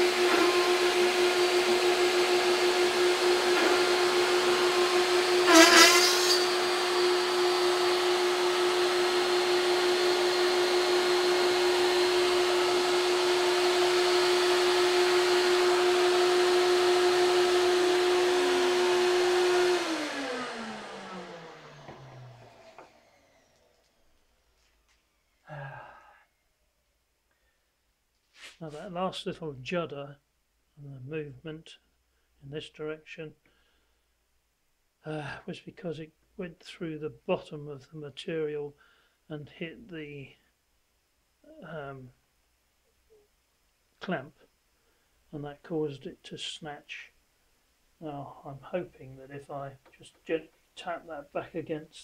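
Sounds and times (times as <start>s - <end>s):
vacuum hose hissing: 0.0s - 24.1s
motor spinning down: 0.0s - 24.4s
router spindle whining: 0.0s - 25.4s.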